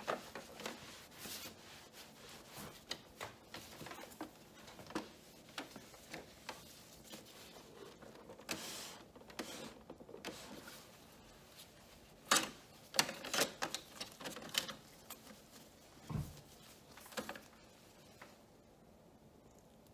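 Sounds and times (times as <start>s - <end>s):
cloth wiping plastic: 0.0s - 18.5s
dull thump: 16.1s - 16.5s.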